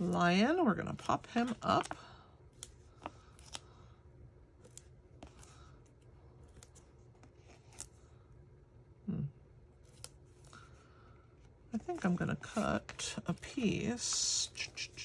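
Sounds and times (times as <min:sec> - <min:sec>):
faint paper clicks and rustles: 0:00.0 - 0:04.0, 0:04.6 - 0:08.2.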